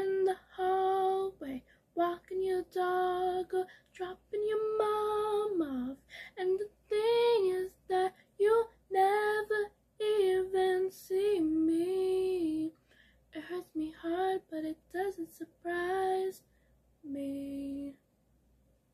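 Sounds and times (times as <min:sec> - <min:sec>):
woman singing unaccompanied: 0:00.0 - 0:12.8, 0:13.4 - 0:16.4, 0:17.0 - 0:18.0.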